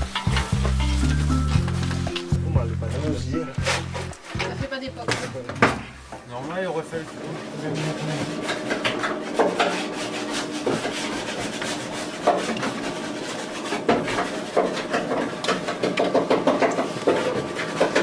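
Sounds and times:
dough kneader machine hum: 0:07.0 - 0:18.0
dough slapping against steel bowl: 0:10.6 - 0:18.0.

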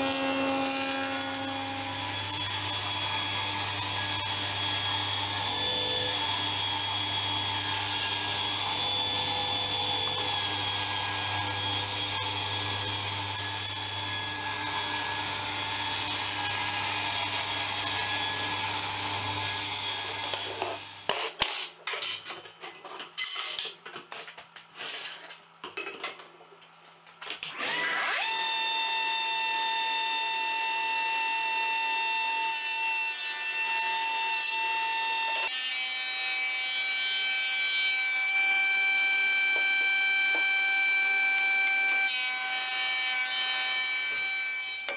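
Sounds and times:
table saw ripping wood: 0:00.0 - 0:21.7, 0:27.4 - 0:28.5.

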